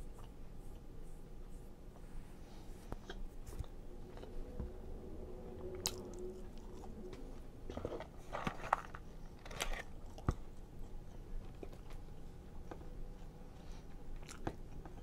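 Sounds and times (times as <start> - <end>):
chewing fries: 5.6 - 15.0.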